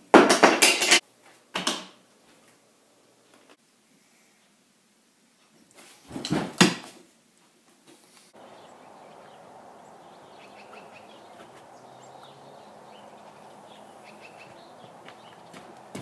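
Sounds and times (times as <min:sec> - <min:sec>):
faint steady hiss: 0:00.0 - 0:16.0
faint bird chirps: 0:08.4 - 0:15.6.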